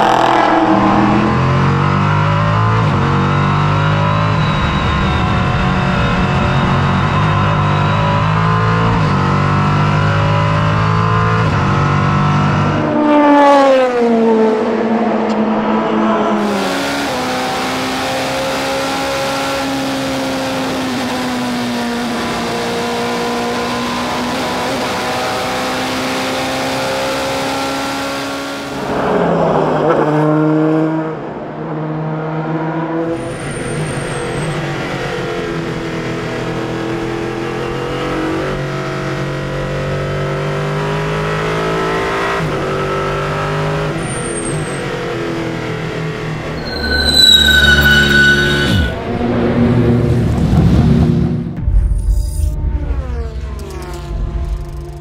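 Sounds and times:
car passing by: 0.0 - 2.2
racing car engines revving: 0.0 - 51.6.

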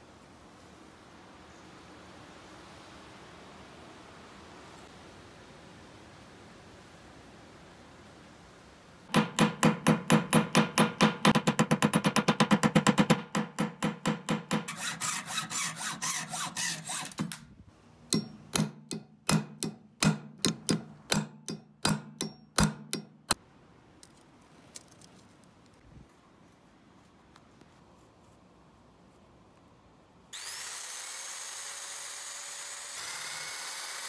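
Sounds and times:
hammer striking steel rod: 9.1 - 17.4, 18.1 - 23.4.

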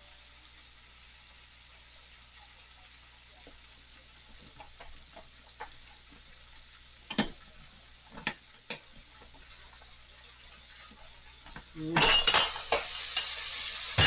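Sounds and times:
faint steady hiss: 0.0 - 14.0.

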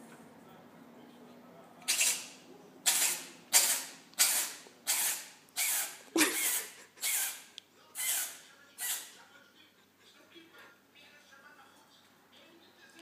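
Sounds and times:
cat sneezing: 2.9 - 7.4.

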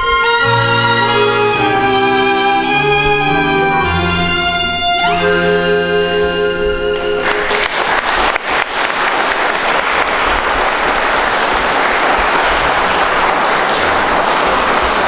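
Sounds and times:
violin and accordion note: 0.0 - 7.6
audience applauding: 7.2 - 15.0.

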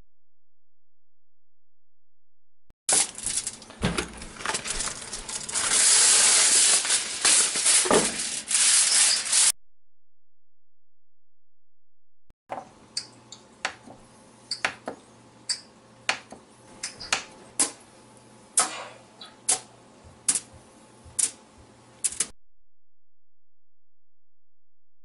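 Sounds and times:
foil rustling: 2.9 - 9.5.

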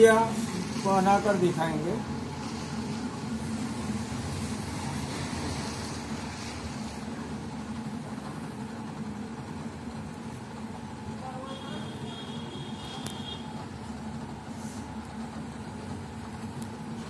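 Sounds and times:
potter's wheel motor humming: 0.0 - 17.0.

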